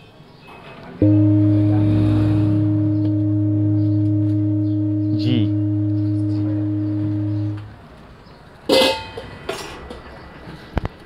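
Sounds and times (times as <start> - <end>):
singing bowl ringing: 1.0 - 7.7.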